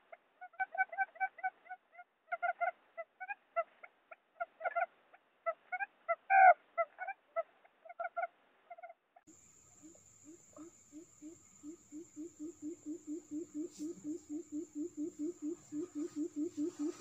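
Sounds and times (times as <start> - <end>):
quail calls: 5.5 - 8.9, 10.2 - 17.0.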